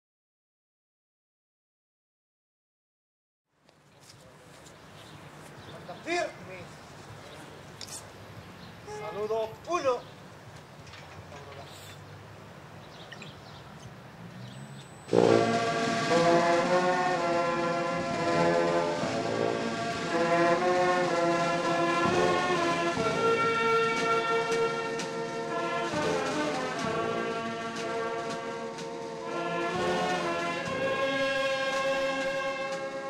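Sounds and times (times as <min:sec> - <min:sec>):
military brass band playing: 0:08.8 - 0:10.0, 0:14.2 - 0:33.0.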